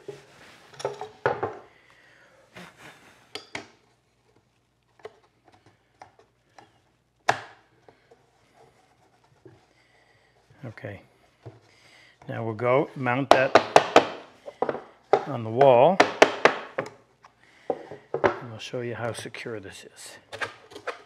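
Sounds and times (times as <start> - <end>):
wooden knocks and taps: 13.3 - 17.0, 17.7 - 18.4.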